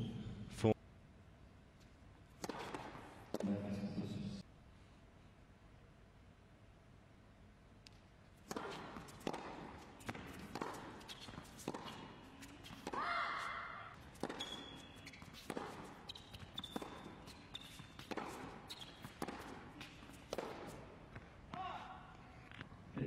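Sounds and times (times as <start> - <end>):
tennis ball bounces: 2.4 - 3.6, 8.4 - 13.1, 13.8 - 21.8
tennis racket strikes: 2.4 - 3.6, 8.4 - 13.1, 13.9 - 20.9
shoe squeaks: 10.2 - 13.3, 14.0 - 20.3.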